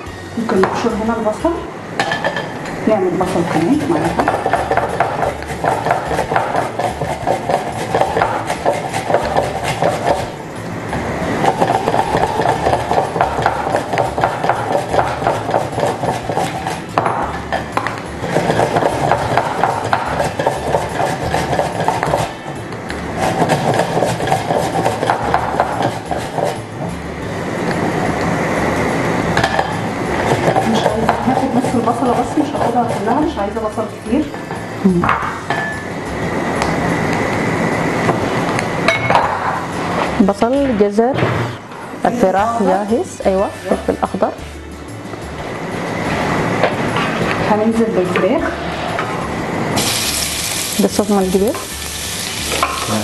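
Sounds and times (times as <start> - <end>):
onion rasping on metal grater: 3.2 - 10.4, 11.4 - 16.9, 18.2 - 22.4, 23.1 - 26.6.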